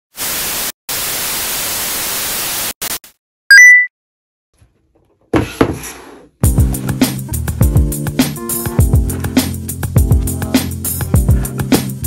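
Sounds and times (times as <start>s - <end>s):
loud static hiss: 0.2s - 3.1s.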